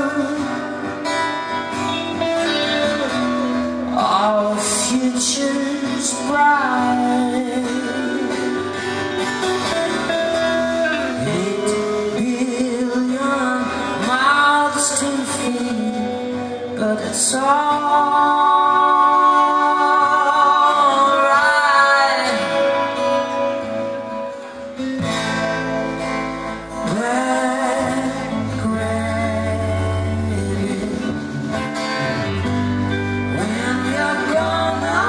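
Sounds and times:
person singing: 0.0s - 9.2s, 9.8s - 24.4s, 26.7s - 35.0s
guitars: 0.0s - 35.0s
bass and drums: 22.3s - 35.0s.

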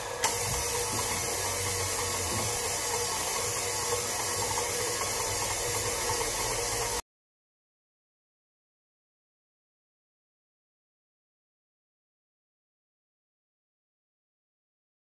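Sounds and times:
stand mixer running: 0.0s - 7.0s.

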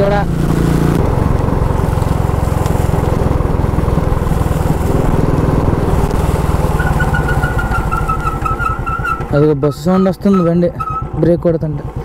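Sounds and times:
motorcycle engine running: 0.0s - 12.0s
pulsing brake squeal: 6.7s - 11.2s.

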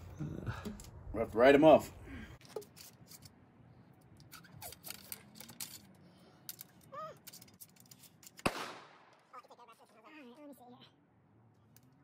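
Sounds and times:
ramrod clicking and scraping in barrel: 4.2s - 8.5s
loud sharp crack: 8.4s - 9.2s.

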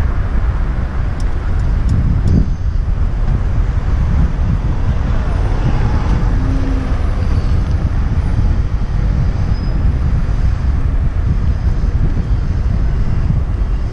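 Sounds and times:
road traffic: 0.0s - 13.9s
wind on microphone: 0.0s - 13.9s.

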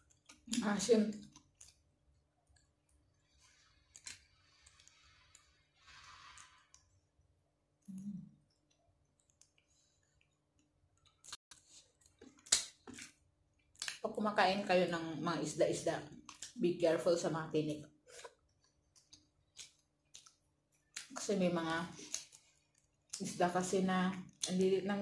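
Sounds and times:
crispy food crunch: 0.0s - 6.9s, 8.3s - 14.1s, 16.1s - 16.6s, 18.3s - 23.3s
fingers and mouth clicks: 7.8s - 14.0s, 18.3s - 21.2s
person humming mm: 7.9s - 8.2s.

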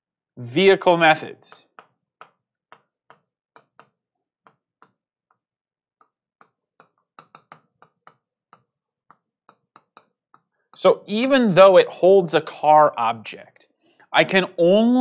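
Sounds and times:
stylus tapping on touchscreen: 1.4s - 11.4s.

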